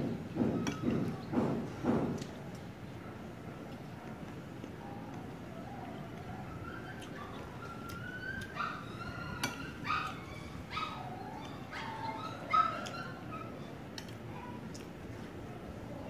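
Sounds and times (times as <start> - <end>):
animal whining: 4.8 - 14.6
cutlery clicking on a plate: 9.4 - 9.6.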